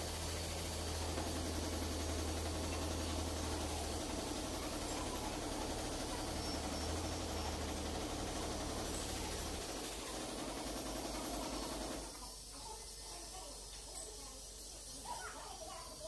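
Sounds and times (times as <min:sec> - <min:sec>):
machinery humming: 0:00.0 - 0:12.1.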